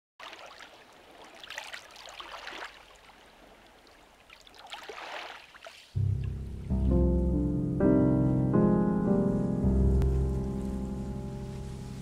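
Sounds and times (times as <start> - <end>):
small water splashes: 0.2 - 6.0.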